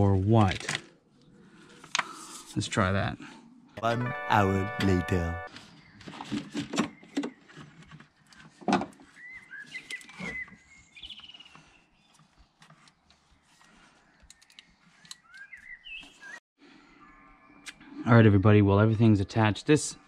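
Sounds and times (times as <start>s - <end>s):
birds chirping: 13.3s - 18.5s.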